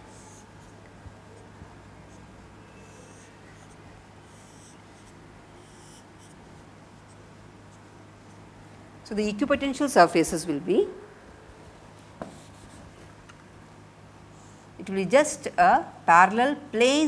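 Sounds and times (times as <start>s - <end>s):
steady low hum: 0.0s - 17.0s
marker scratching on whiteboard: 0.1s - 0.8s, 2.0s - 6.4s, 12.2s - 12.8s.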